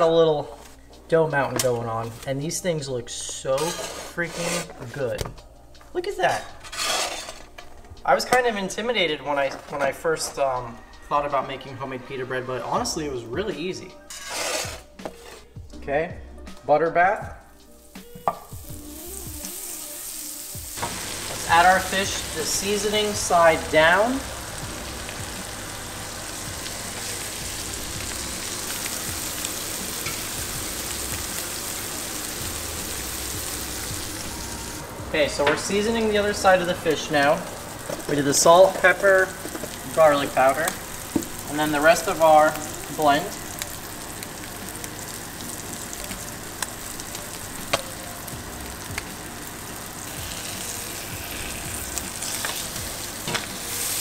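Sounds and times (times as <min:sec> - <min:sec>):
fish sizzling in butter: 0:17.7 - 0:54.0.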